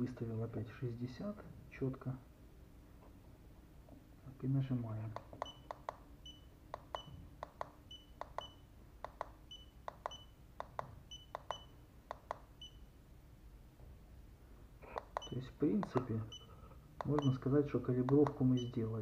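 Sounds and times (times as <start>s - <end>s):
plastic button clicks: 18.0s - 18.4s.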